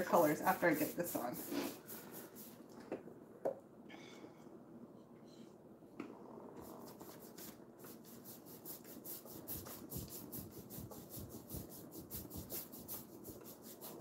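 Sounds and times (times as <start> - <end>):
paintbrush scrubbing on wood: 0.0 - 2.6, 6.6 - 14.0.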